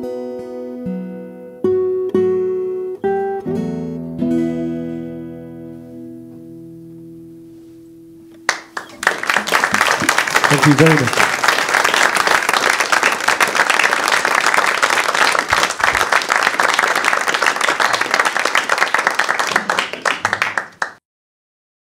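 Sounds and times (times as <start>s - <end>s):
audience applauding: 8.5s - 21.0s.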